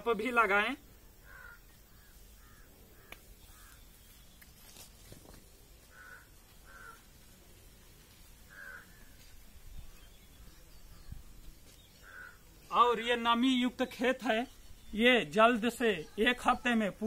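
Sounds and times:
faint crows cawing: 1.0s - 4.1s, 5.7s - 7.4s, 8.3s - 10.0s, 11.7s - 12.8s.

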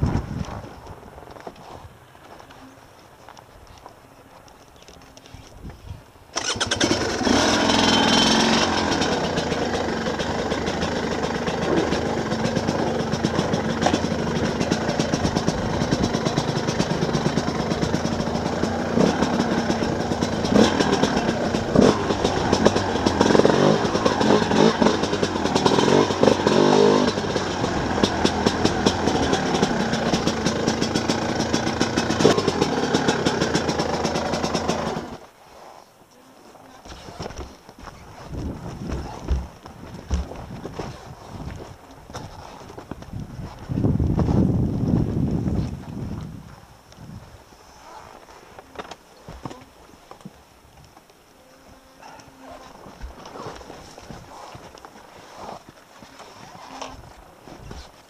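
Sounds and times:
motorcycle engine running: 6.4s - 35.2s
motorcycle knocking on rocks: 38.4s - 40.8s.

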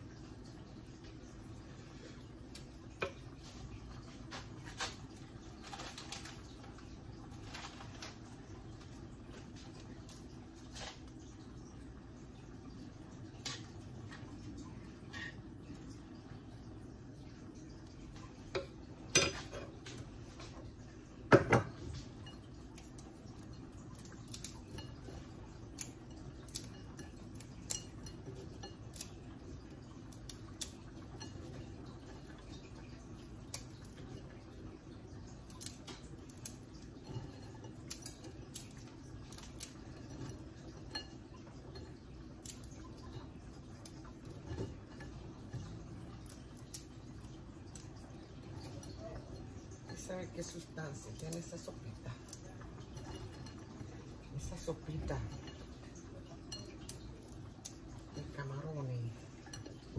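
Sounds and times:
dry noodles breaking in bowl: 22.6s - 50.0s.

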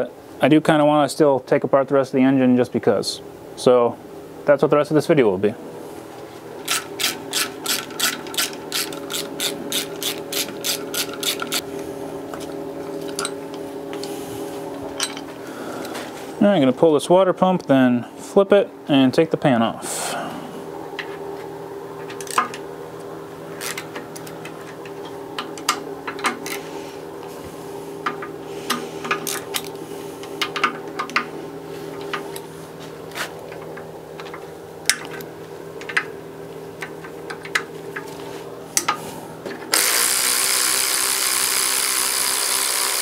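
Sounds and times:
background hum: 0.0s - 43.0s
ratchet clicking: 6.6s - 11.6s, 23.6s - 23.9s, 39.7s - 43.0s
power tool running: 6.6s - 16.0s, 39.7s - 43.0s.

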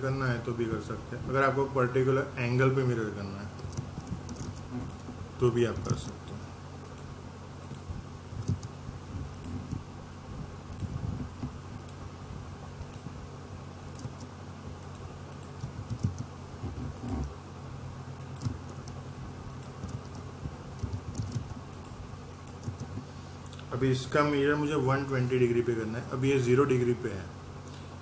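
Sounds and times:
low electrical hum: 0.0s - 28.0s
keyboard typing: 3.6s - 5.0s, 8.4s - 8.7s, 13.9s - 14.3s, 14.9s - 17.3s, 18.3s - 19.0s, 19.6s - 21.6s, 22.5s - 23.0s.

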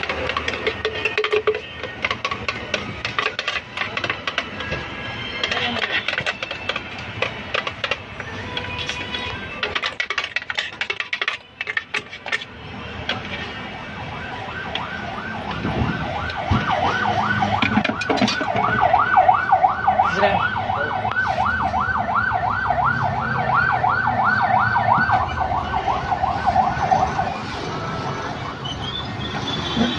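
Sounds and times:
sharp clicks and knocks: 0.0s - 13.4s, 14.7s - 19.0s
emergency vehicle siren yelping: 12.4s - 29.9s.

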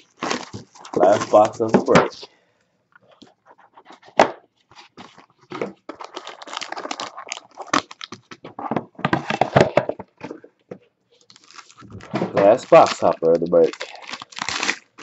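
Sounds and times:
packaging crinkling: 0.0s - 2.0s, 4.7s - 9.8s, 11.2s - 15.0s
cardboard scraping and tapping: 8.4s - 10.8s.

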